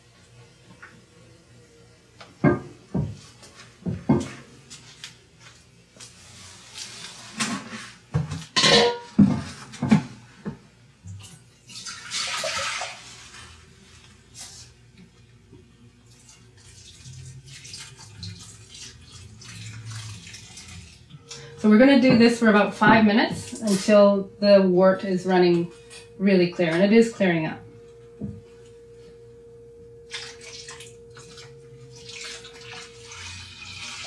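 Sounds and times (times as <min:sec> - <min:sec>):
liquid sloshing and splashing: 0:11.1 - 0:13.6, 0:16.0 - 0:22.0, 0:30.0 - 0:34.0
liquid pouring: 0:16.0 - 0:21.2, 0:30.1 - 0:34.0.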